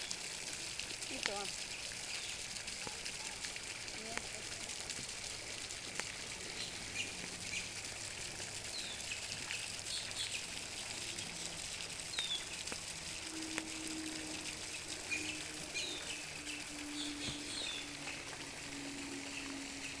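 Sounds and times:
low steady hum: 0:00.0 - 0:20.0
birds chirping: 0:06.4 - 0:07.8, 0:08.6 - 0:20.0.

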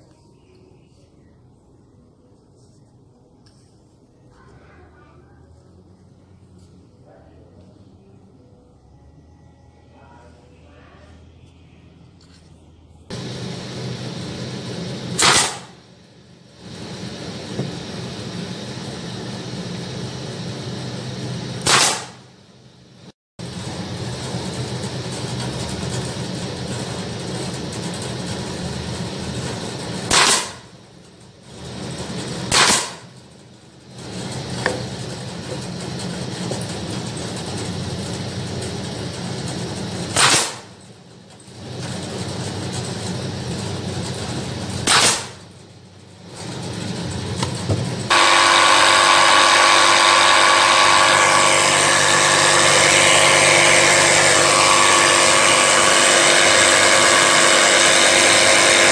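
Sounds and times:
loud steady noise: 0:13.1 - 0:22.4, 0:47.4 - 0:58.9
brad nailer firing: 0:15.0 - 0:15.8, 0:21.6 - 0:22.3, 0:30.0 - 0:30.7, 0:32.4 - 0:33.2, 0:40.1 - 0:40.8, 0:44.8 - 0:45.5, 0:47.4 - 0:58.9.

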